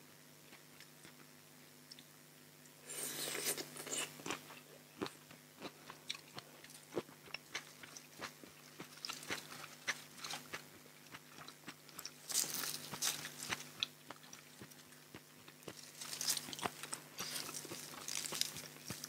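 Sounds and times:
crunching and chewing vegetables: 0.4s - 19.0s
leafy greens rustling and tearing: 12.0s - 13.6s, 15.7s - 19.0s.

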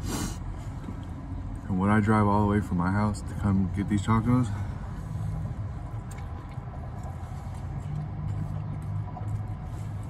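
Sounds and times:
chewing clicks: 5.9s - 9.6s.

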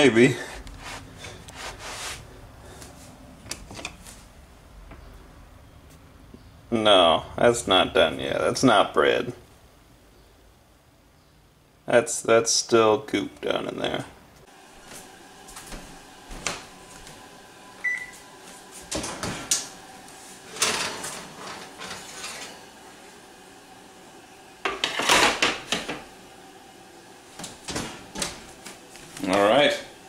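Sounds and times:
oven door opening: 18.9s - 19.8s, 20.4s - 22.7s, 27.4s - 28.7s
metal pan scraping: 20.5s - 22.6s.

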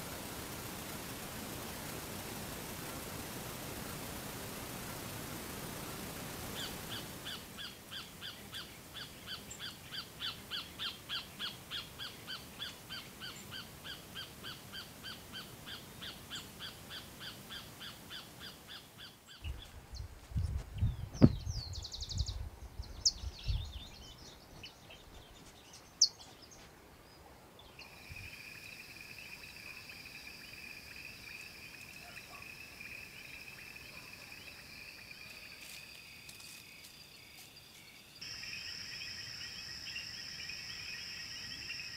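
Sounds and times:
insect trill: 0.0s - 18.3s, 27.8s - 41.9s
low thumps: 20.3s - 21.6s.

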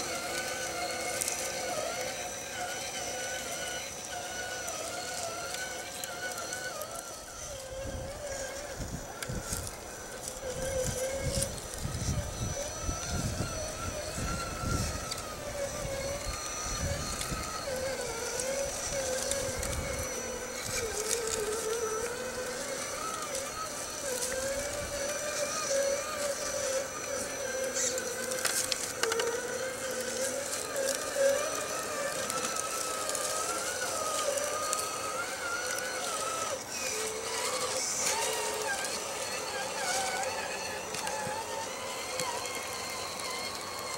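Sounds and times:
electric motor whining: 0.0s - 43.9s
wind rumble on microphone: 7.3s - 27.9s
faint clicks: 16.0s - 43.9s.

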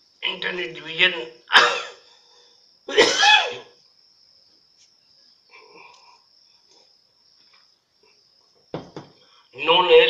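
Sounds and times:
man coughing: 1.5s - 2.0s, 2.9s - 3.7s.

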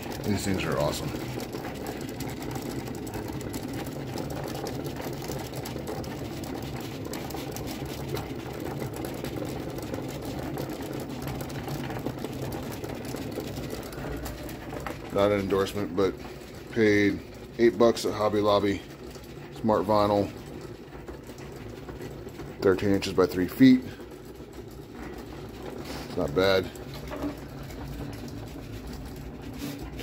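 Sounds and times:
cutting machine whirring and ticking: 0.0s - 30.0s.

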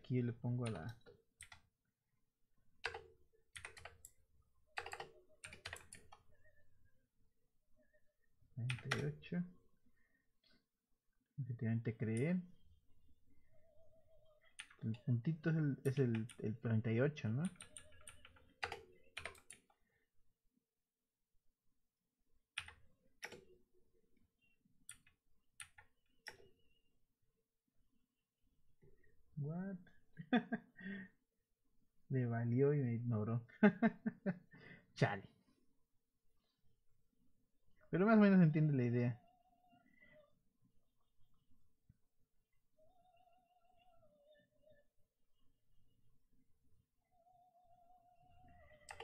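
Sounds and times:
computer keyboard typing: 0.6s - 1.7s, 2.8s - 6.2s, 8.6s - 9.1s, 15.8s - 16.6s, 17.4s - 19.7s, 22.6s - 23.5s, 48.6s - 49.0s.

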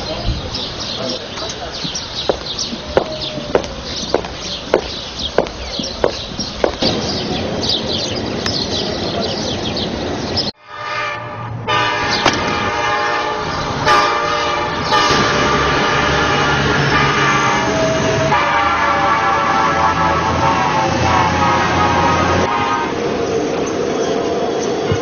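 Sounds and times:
chirps and clicks: 8.4s - 8.7s.

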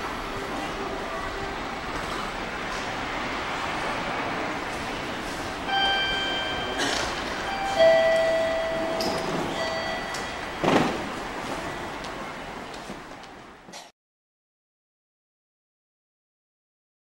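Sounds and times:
station noise: 0.0s - 13.8s
electronic platform chime: 5.7s - 6.8s, 7.4s - 10.7s.

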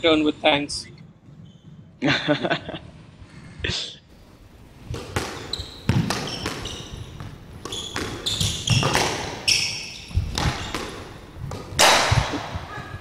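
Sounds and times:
squash ball hits: 4.8s - 12.7s
shoe squeaks on wooden floor: 5.4s - 10.9s.

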